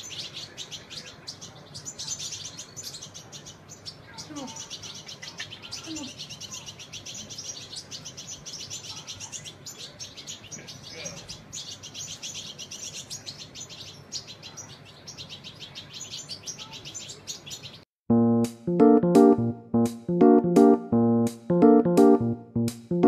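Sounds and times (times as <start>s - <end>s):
young birds chirping: 0.0s - 17.9s.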